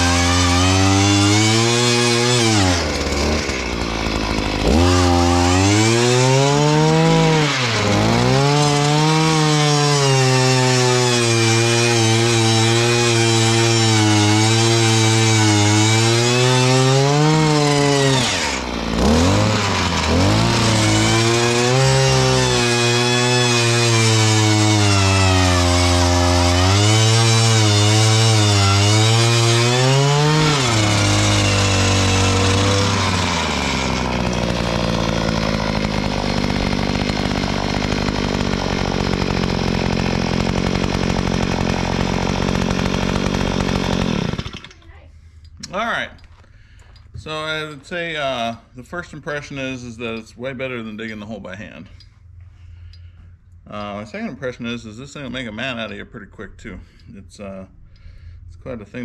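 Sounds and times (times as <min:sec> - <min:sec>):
auger engine drilling into ground: 0:00.0 - 0:44.9.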